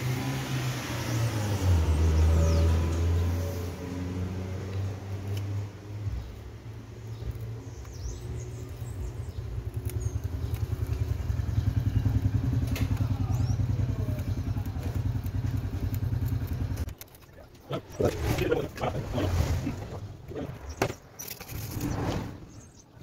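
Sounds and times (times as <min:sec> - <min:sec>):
engine running: 0:08.3 - 0:21.8.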